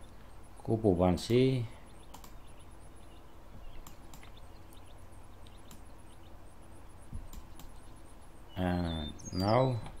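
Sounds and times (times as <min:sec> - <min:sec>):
low hum of room tone: 0:00.0 - 0:10.0
computer mouse clicks: 0:02.0 - 0:02.5, 0:03.8 - 0:04.8, 0:07.3 - 0:07.8.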